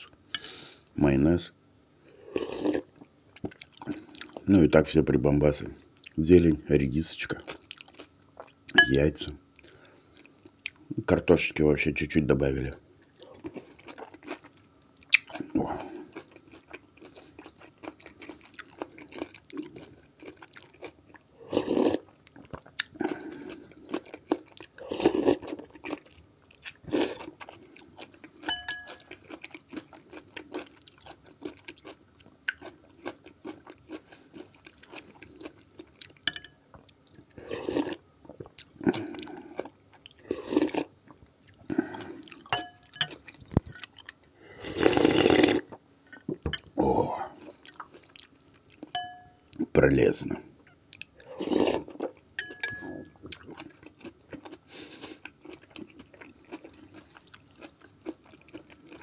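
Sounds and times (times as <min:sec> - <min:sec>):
chewing and slurping soup: 0:02.2 - 0:04.4, 0:07.4 - 0:09.0, 0:13.0 - 0:46.7, 0:47.3 - 0:49.6, 0:50.9 - 0:59.0
metal spoon clinking glass bowl: 0:08.8 - 0:09.0, 0:28.5 - 0:29.0, 0:36.3 - 0:36.6, 0:42.5 - 0:43.2, 0:48.9 - 0:49.4, 0:52.4 - 0:53.2.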